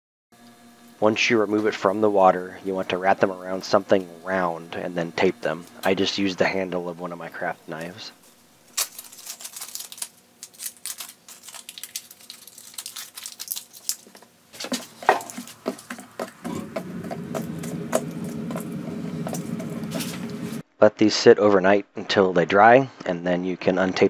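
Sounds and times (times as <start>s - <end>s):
steady low hum: 0.4s - 20.6s
tape and wood strip rustling: 8.2s - 16.4s.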